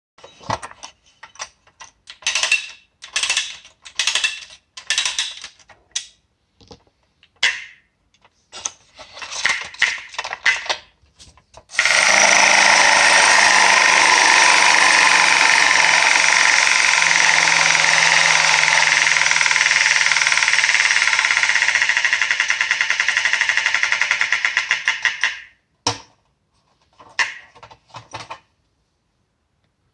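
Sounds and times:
clockwork toy winding ratchet: 2.1s - 5.6s, 11.7s - 25.5s
clockwork toy mechanical rattle: 11.8s - 25.2s.

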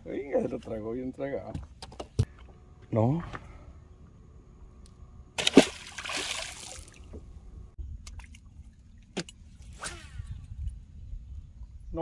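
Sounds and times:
water splashing and sloshing: 5.4s - 9.8s.

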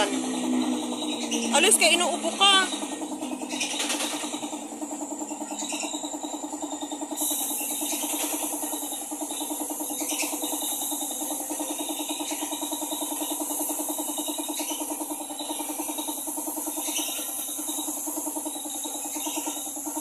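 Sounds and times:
air compressor chugging: 0.0s - 20.0s
paint spray gun hissing: 0.0s - 20.0s.

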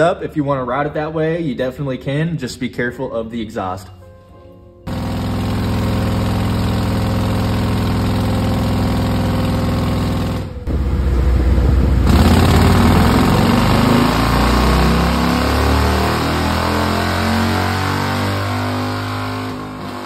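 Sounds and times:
motorcycle engine revving: 4.9s - 20.0s.

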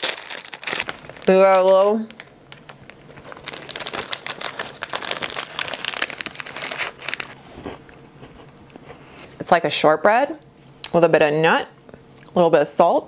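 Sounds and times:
plastic wrapper crinkling: 0.0s - 7.4s.

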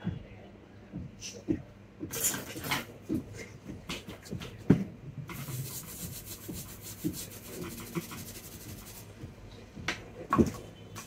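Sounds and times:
scratchy rubbing strokes: 5.3s - 9.1s.

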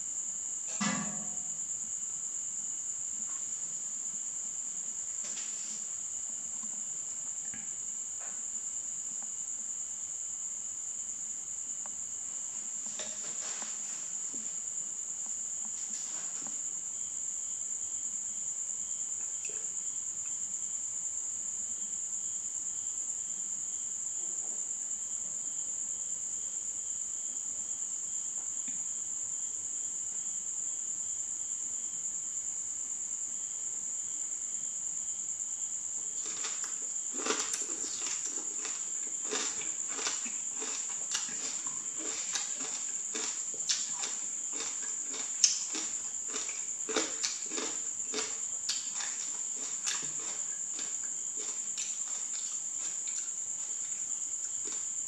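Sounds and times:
faint pulsing insect: 0.0s - 55.0s
high-pitched insect trill: 0.0s - 55.0s
plant stems rustling: 36.2s - 53.8s.

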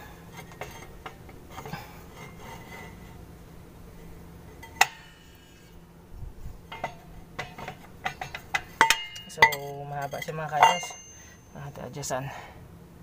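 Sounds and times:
sharp metallic clink: 6.7s - 11.7s.

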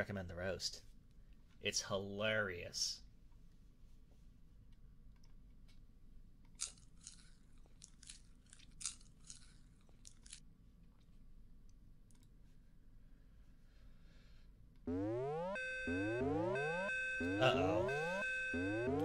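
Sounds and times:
low hum: 14.7s - 19.0s.

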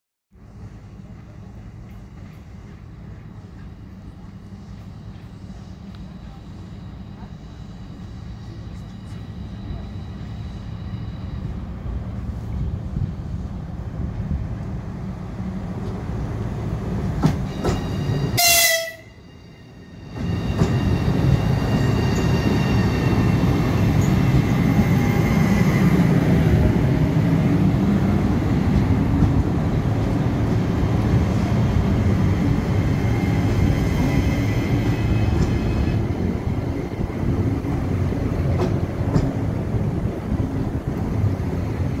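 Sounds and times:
train wheel rumble: 0.3s - 42.0s
train horn blast: 18.3s - 19.2s.

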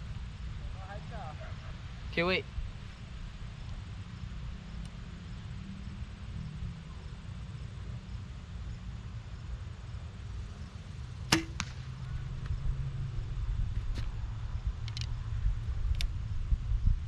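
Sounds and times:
bow string snap: 11.3s - 11.9s.

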